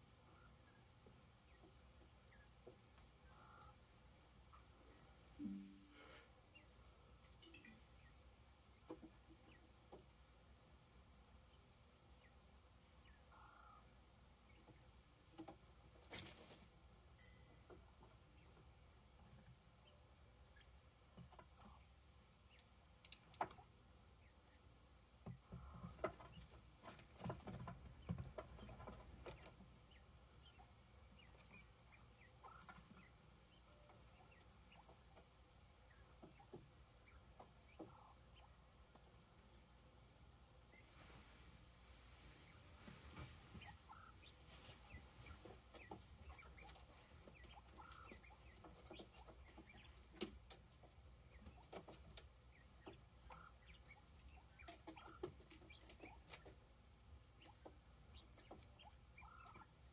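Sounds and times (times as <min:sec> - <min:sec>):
quail calls: 0:03.2 - 0:03.8, 0:43.6 - 0:50.0, 0:58.2 - 0:59.7
faint scratching and scuffling: 0:15.5 - 0:16.9, 0:40.6 - 0:50.6.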